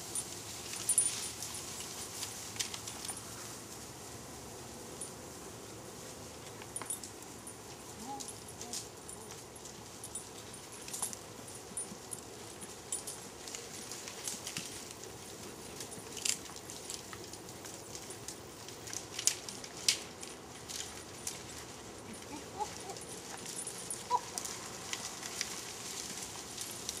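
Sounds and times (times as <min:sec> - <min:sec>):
goat hooves on dry ground: 0:00.0 - 0:04.2, 0:05.0 - 0:27.0
low outdoor hiss: 0:00.0 - 0:27.0.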